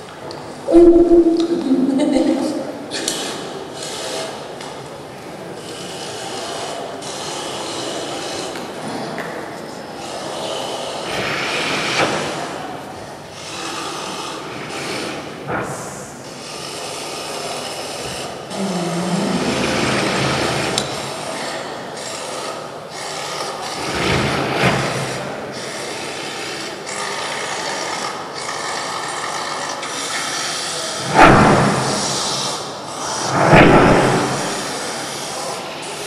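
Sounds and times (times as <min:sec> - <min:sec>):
short low tone: 0:00.7 - 0:02.5
loud surge of noise: 0:00.7 - 0:03.0, 0:31.0 - 0:35.7.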